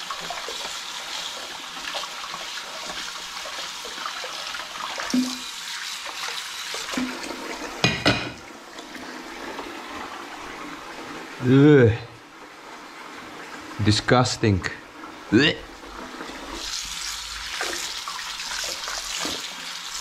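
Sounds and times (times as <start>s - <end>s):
tap running into sink: 5.0s - 5.5s.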